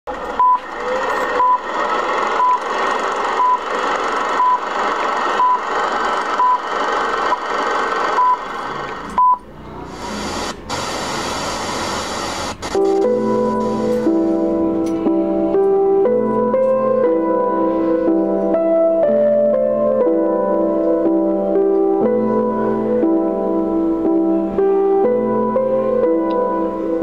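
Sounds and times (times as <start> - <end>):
crackling hiss: 10.0 - 12.9.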